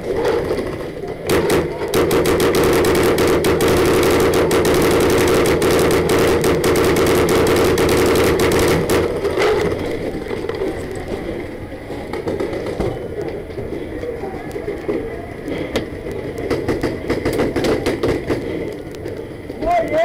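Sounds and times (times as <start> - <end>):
paintball marker firing rapidly: 1.3 - 9.7.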